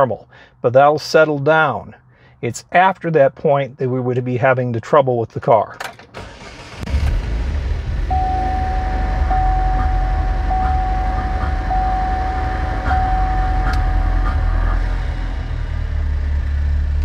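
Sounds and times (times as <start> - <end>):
car engine starting and idling: 5.9 - 17.0
steady high tone: 8.0 - 15.8.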